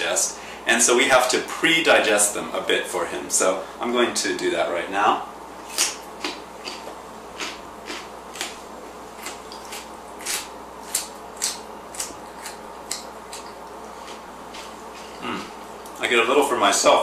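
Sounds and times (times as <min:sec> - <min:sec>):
person chewing carrots: 0:05.6 - 0:08.6, 0:09.2 - 0:16.0.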